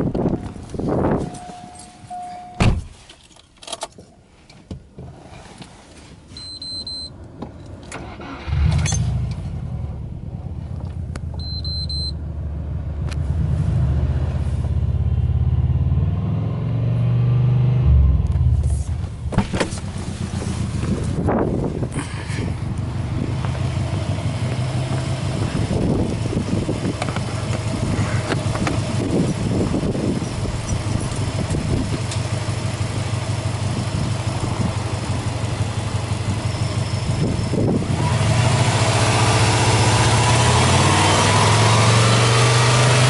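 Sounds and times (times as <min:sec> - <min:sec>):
car engine starting and idling: 0:00.0 - 0:43.0
short high beeps: 0:01.2 - 0:02.6, 0:06.4 - 0:07.1, 0:11.4 - 0:12.1.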